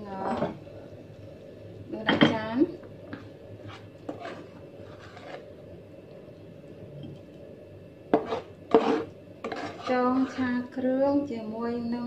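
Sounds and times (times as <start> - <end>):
spatula scraping in a wok: 3.2 - 5.6, 8.1 - 10.8.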